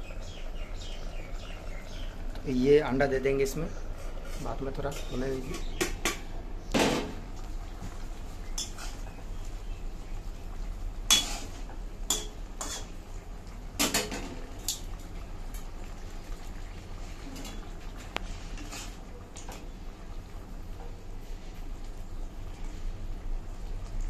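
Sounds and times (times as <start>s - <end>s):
metal spatula scraping iron pan: 11.1s - 12.9s.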